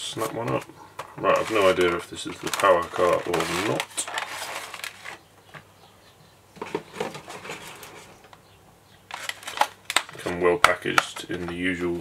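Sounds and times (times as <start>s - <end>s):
plastic packaging crinkling: 0.2s - 5.2s, 9.1s - 11.7s.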